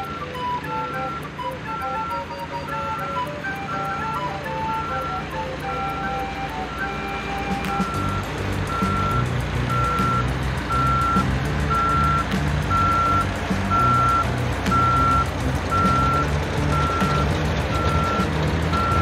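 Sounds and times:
reversing alarm beeping: 0.0 - 19.0
low rumble: 8.0 - 18.8.

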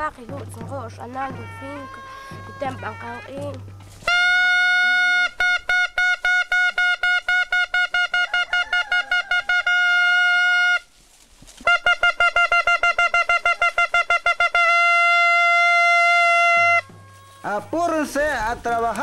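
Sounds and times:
metal horn toots and blasts: 4.0 - 10.9, 11.6 - 18.2.

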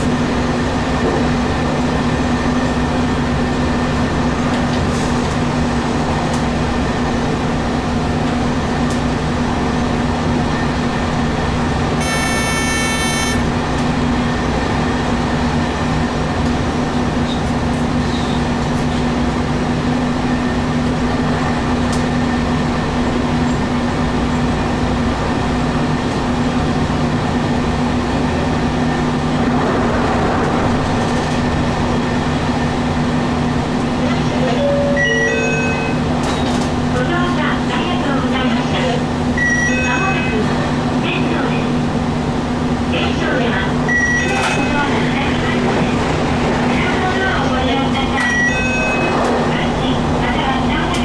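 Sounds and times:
wheels rumbling on rail: 0.0 - 51.0
brief high-pitched tone: 12.0 - 13.4, 48.2 - 49.2.

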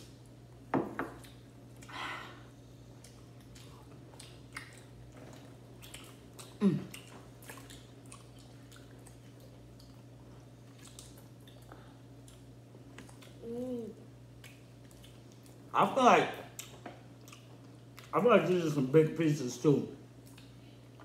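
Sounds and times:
chewing and biting chicken: 2.9 - 13.4
person humming mm: 6.6 - 7.0, 13.4 - 14.0.

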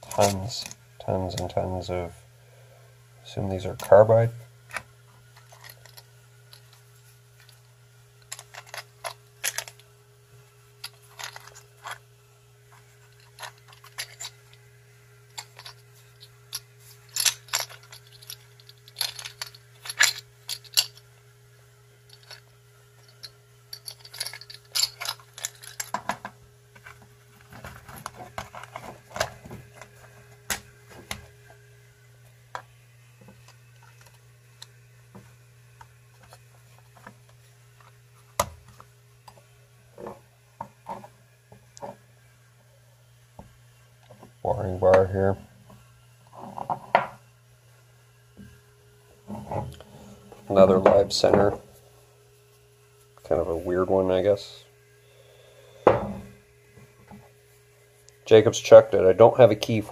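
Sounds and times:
steady low hum: 0.0 - 59.9
metal inserts clinking: 8.2 - 9.8, 10.8 - 12.0, 13.1 - 14.6, 15.3 - 21.0, 22.1 - 26.9
steel tool bits set down: 10.8 - 12.0, 15.4 - 21.0.

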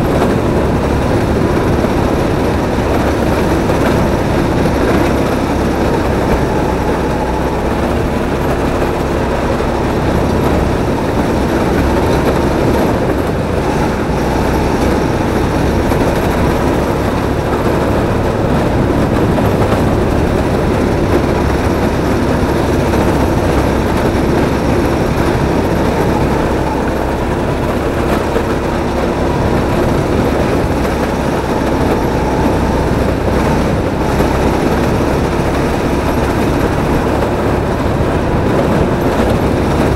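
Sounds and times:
kart engine running: 0.0 - 39.9.

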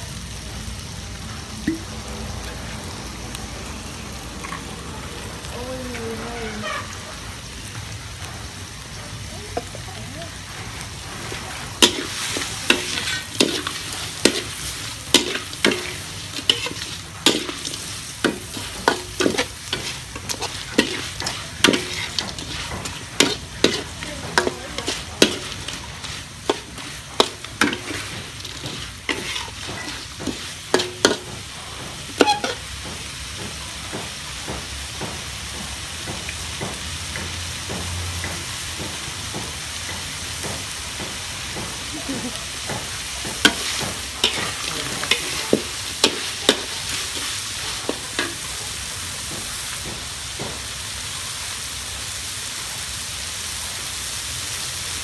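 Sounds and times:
oil sizzling: 0.0 - 55.0
metal spatula scraping a wok: 10.5 - 33.1, 42.2 - 48.8.

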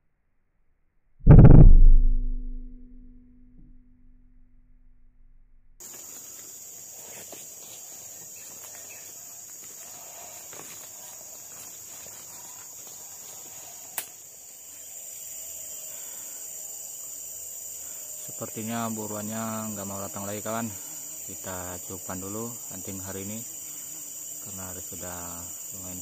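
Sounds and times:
footsteps rustling through undergrowth: 5.8 - 13.8
insects droning: 5.8 - 26.0.

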